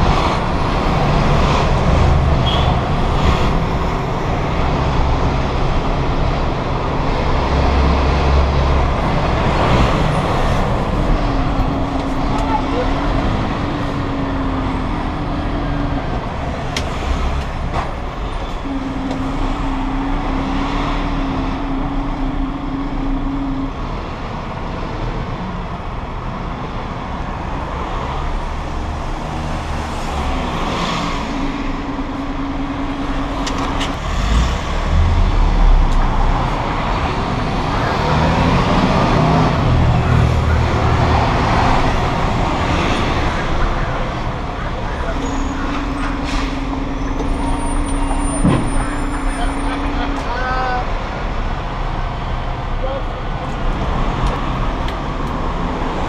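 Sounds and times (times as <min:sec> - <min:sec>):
lorry diesel engine running: 0:00.0 - 0:56.0
road noise: 0:00.0 - 0:56.0.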